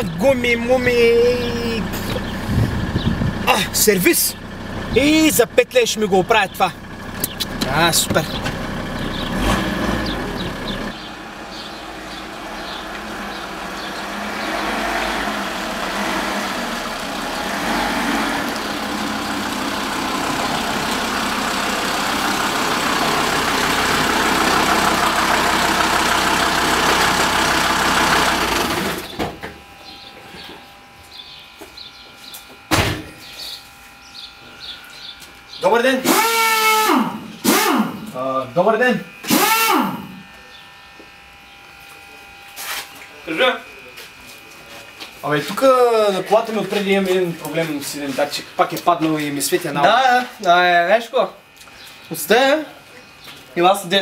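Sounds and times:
car engine and road noise: 0:00.0 - 0:30.0
car door shutting: 0:32.7 - 0:33.2.

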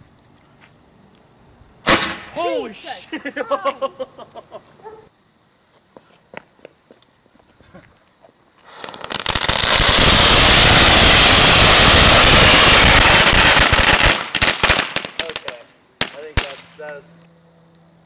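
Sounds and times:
firework crackling balls popping: 0:08.6 - 0:17.0.

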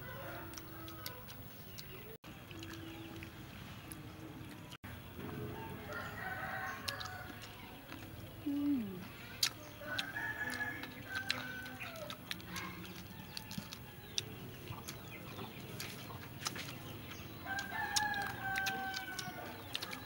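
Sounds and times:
rooster crowing: 0:05.5 - 0:07.4, 0:09.8 - 0:12.1, 0:17.4 - 0:19.5.

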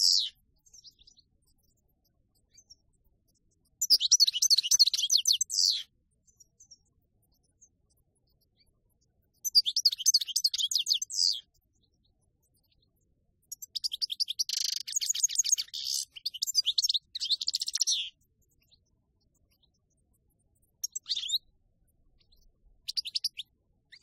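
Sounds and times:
goldfinch twittering song: 0:00.0 - 0:01.3, 0:03.7 - 0:06.8, 0:09.4 - 0:11.5, 0:13.4 - 0:18.9, 0:20.7 - 0:21.6, 0:22.2 - 0:24.0.

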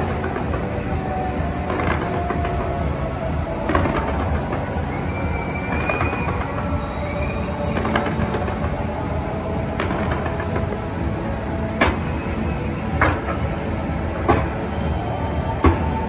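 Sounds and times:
high whistling tone: 0:00.0 - 0:10.7, 0:11.5 - 0:16.0
fireworks rumbling explosions: 0:00.0 - 0:16.0
sharp firework bangs: 0:03.6 - 0:10.7.

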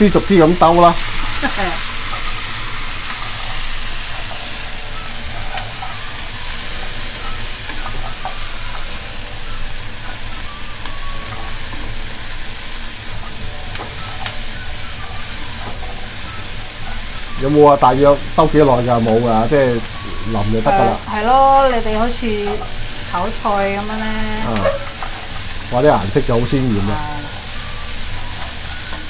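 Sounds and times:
vegetables sizzling in a wok: 0:00.0 - 0:29.0
spatula scraping and tapping pan: 0:24.6 - 0:25.3.

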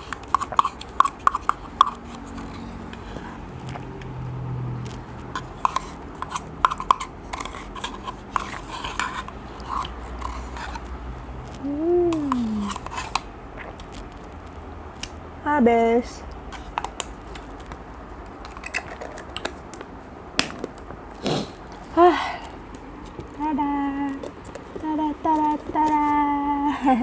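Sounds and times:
spoon scraping plastic cup: 0:00.0 - 0:03.3, 0:05.2 - 0:10.9, 0:11.5 - 0:13.3
person humming: 0:11.6 - 0:12.8.

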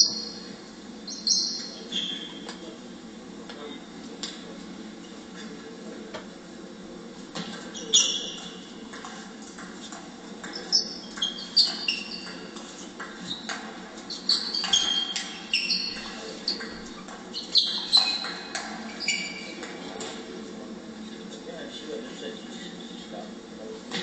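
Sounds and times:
shoes squeaking on floor: 0:07.4 - 0:09.2, 0:10.4 - 0:19.6.

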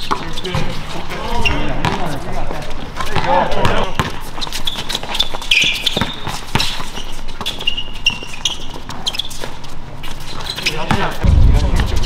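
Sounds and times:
sneakers squeaking: 0:00.0 - 0:12.0
basketball bouncing on court: 0:01.7 - 0:02.1, 0:03.1 - 0:04.3, 0:05.7 - 0:06.8, 0:10.8 - 0:12.0.

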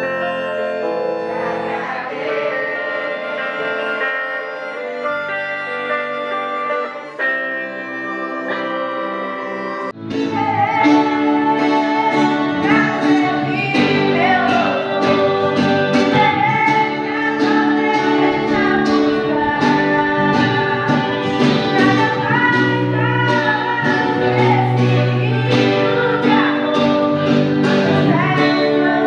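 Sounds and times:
song with plucked guitar: 0:00.0 - 0:29.0
group singing a hymn: 0:00.6 - 0:04.6, 0:10.2 - 0:29.0.

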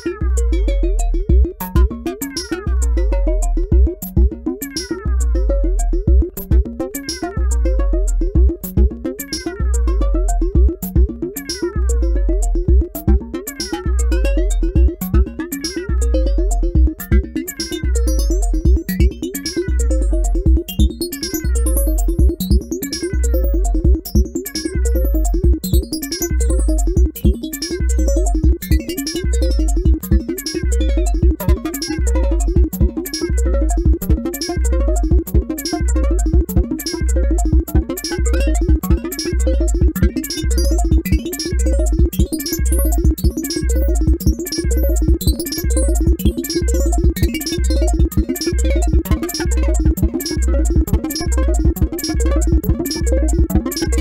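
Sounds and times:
synthesizer loop: 0:00.0 - 0:54.0
crisp clicking percussion: 0:05.8 - 0:54.0.

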